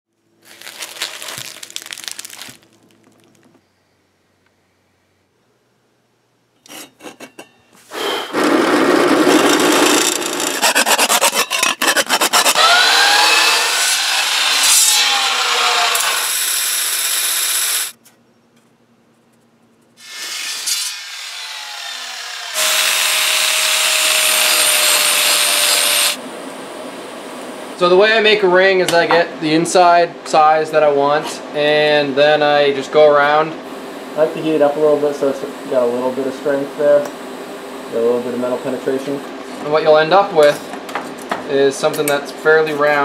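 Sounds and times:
chop saw cutting steel: 7.9 - 18.0, 20.0 - 26.2
angle grinder grinding steel: 8.0 - 18.0, 20.0 - 26.2.

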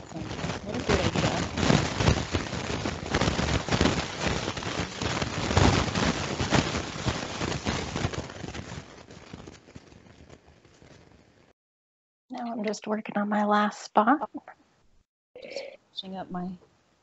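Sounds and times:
fabric rustling and crackling: 0.0 - 11.6.

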